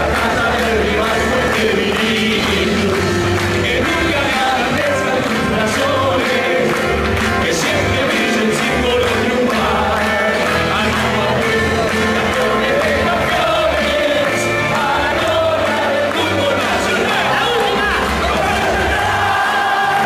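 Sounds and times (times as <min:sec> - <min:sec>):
voices singing in chorus: 0:00.0 - 0:20.0.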